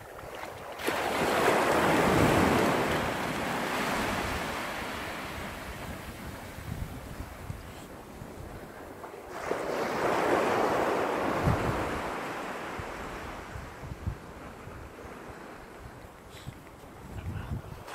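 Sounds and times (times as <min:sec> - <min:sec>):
wave breaking on shore: 0:00.7 - 0:16.0.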